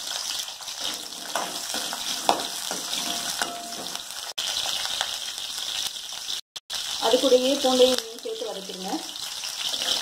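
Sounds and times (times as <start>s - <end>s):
onions sizzling in hot oil: 0.0s - 10.0s
metal spoon clinking and scraping pan: 0.6s - 4.3s, 9.6s - 10.0s.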